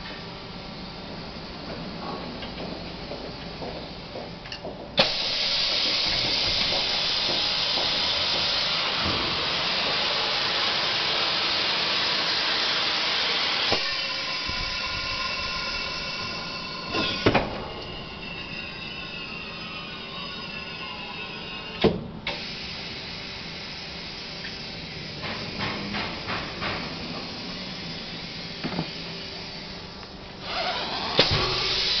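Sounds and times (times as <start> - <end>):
loud steady hiss: 5.0 - 17.6, 22.2 - 32.0.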